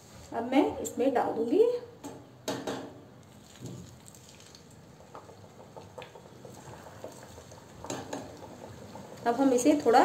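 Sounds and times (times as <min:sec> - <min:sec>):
oil bubbling softly: 0:03.2 - 0:09.8
food sizzling in hot oil: 0:03.3 - 0:10.0.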